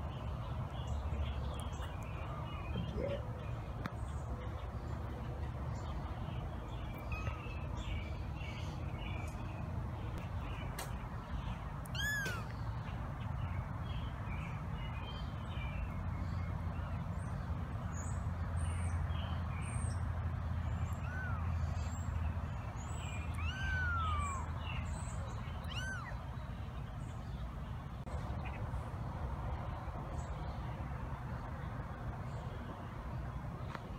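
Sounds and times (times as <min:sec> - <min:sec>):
kitten mewing: 0:12.0 - 0:12.5, 0:23.4 - 0:24.5, 0:25.7 - 0:26.2.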